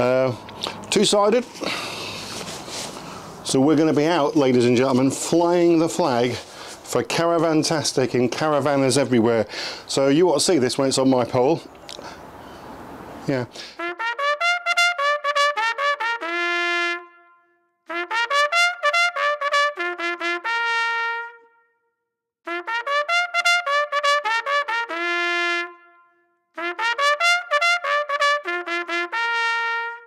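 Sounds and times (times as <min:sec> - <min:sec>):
bright trumpet tune: 0:13.8 - 0:30.0.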